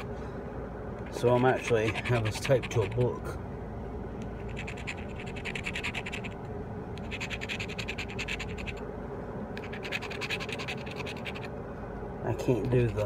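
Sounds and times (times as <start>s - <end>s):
scratching lottery ticket: 1.0s - 3.3s, 4.2s - 6.4s, 7.0s - 8.8s, 9.6s - 11.5s.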